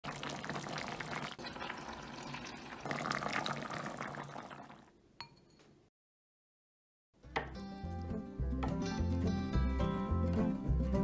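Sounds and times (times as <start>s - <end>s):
stew bubbling in a pot: 0.0s - 4.9s.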